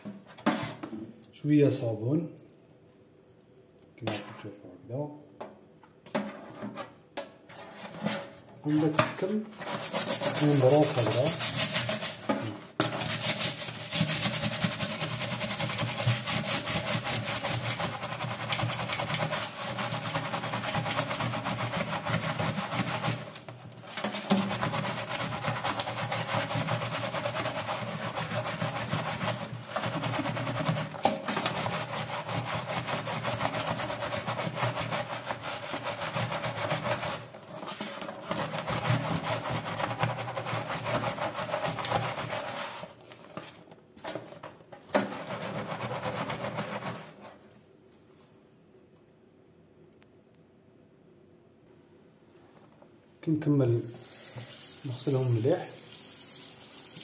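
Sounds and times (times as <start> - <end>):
brush scrubbing plastic mesh: 7.5 - 47.5, 54.8 - 55.6.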